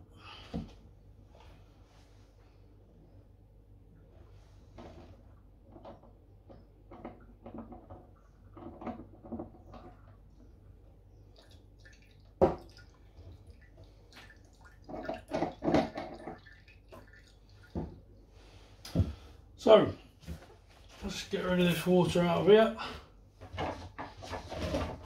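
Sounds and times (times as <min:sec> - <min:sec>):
water dripping and splashing: 0:11.3 - 0:18.1.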